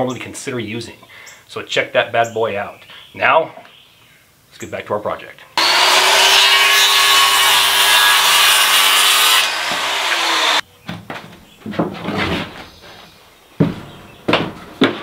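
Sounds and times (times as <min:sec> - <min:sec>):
circular saw cutting wood: 0:05.6 - 0:10.6
wooden knocks and scrapes: 0:10.9 - 0:15.0.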